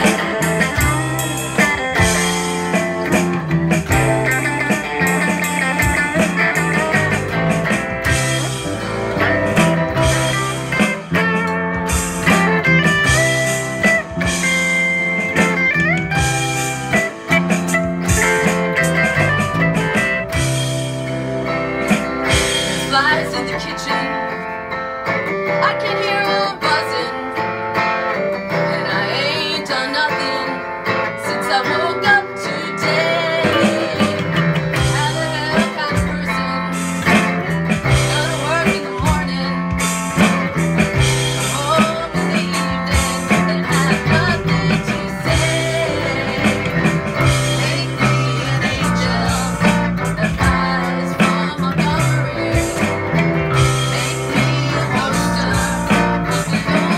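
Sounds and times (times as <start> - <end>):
bass guitar line: 0.0 - 56.9
guitars playing: 0.0 - 56.9
woman singing: 22.7 - 24.4, 25.6 - 27.5, 28.5 - 40.4, 41.4 - 56.9.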